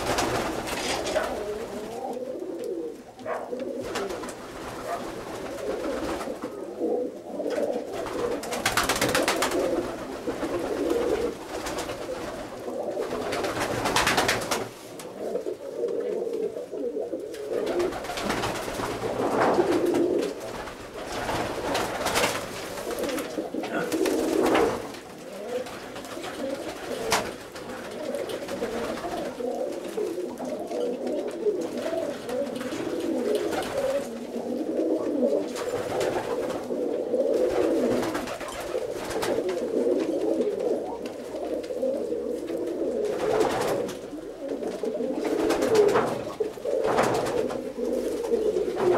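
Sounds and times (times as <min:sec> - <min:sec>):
pigeons cooing: 0:00.0 - 0:48.9.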